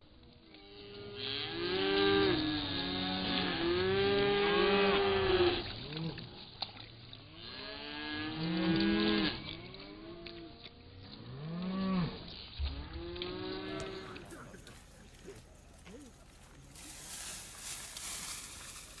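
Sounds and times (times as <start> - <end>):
cattle mooing: 0.6 - 6.2, 7.4 - 10.6, 11.2 - 14.8.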